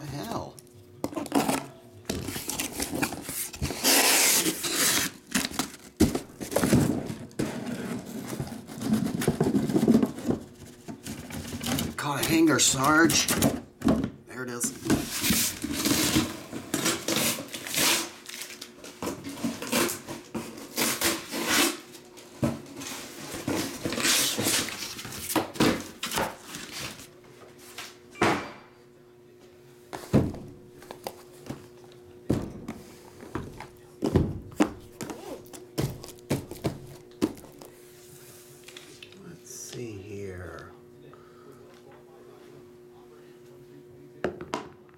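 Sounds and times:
cardboard boxes rustling: 0:01.4 - 0:11.8, 0:32.3 - 0:37.8.

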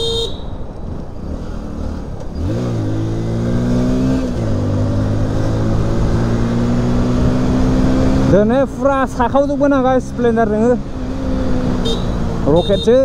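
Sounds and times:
motorcycle engine revving: 0:00.9 - 0:12.8.

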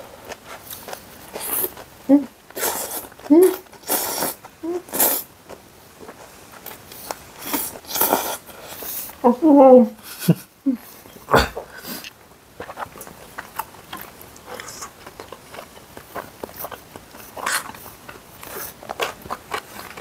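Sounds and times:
chewing and mouth smacks: 0:11.1 - 0:20.0.

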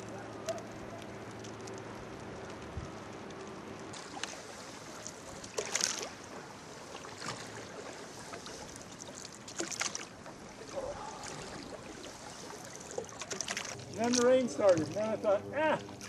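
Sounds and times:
steady watery wash: 0:00.0 - 0:16.0
oars splashing in water: 0:03.9 - 0:15.2.

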